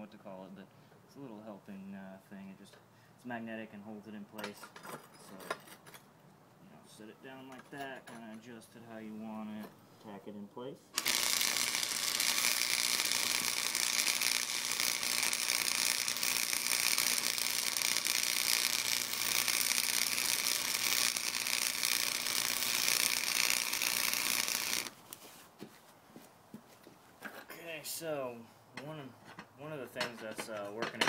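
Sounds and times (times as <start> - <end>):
welding arc crackling and hissing: 11.0 - 25.2.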